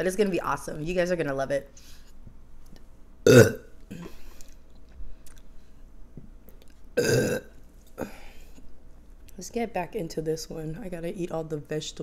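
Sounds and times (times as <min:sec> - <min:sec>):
woman burping: 0:03.2 - 0:04.2, 0:07.0 - 0:08.2.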